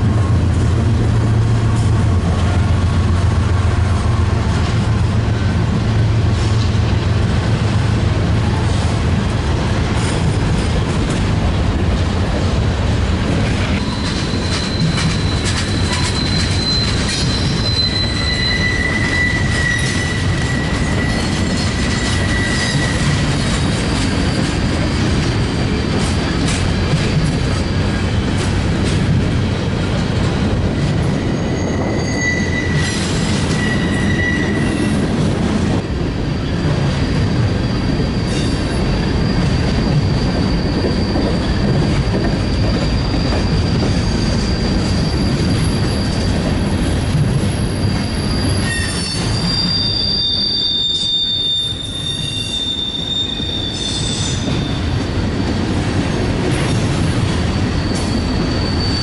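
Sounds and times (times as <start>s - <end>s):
wheels rumbling on track: 0.0s - 59.0s
wheels squealing: 13.5s - 29.1s, 30.7s - 35.1s, 36.4s - 55.7s, 56.8s - 59.0s.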